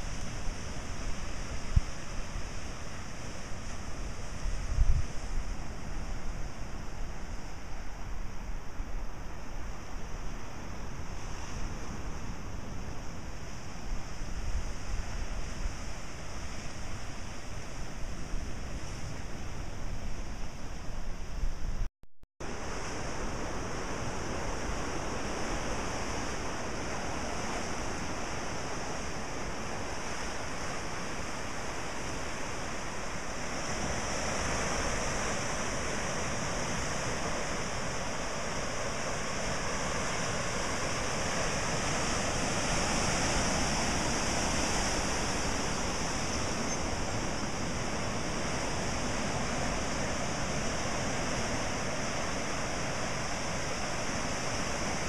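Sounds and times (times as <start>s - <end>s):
ocean surf breaking over rocks: 22.4s - 55.0s.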